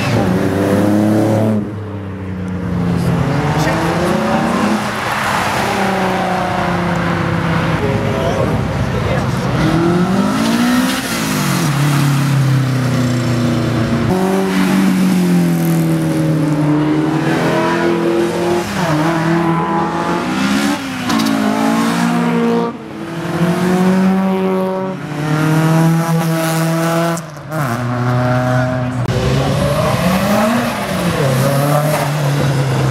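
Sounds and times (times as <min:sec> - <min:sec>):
cars accelerating and revving: 0:00.0 - 0:32.9.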